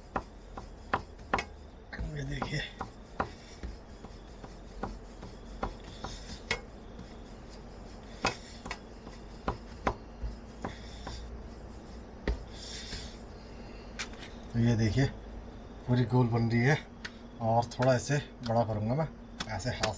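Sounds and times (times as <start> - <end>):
rolling pin knocking on board: 0.1 - 7.1, 8.2 - 11.3, 12.2 - 13.1.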